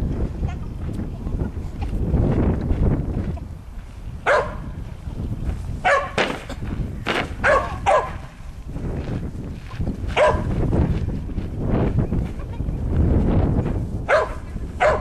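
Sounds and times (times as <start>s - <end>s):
small dog barking: 4.2s - 4.7s, 5.8s - 6.2s, 7.4s - 8.3s, 10.2s - 10.5s, 14.1s - 15.0s.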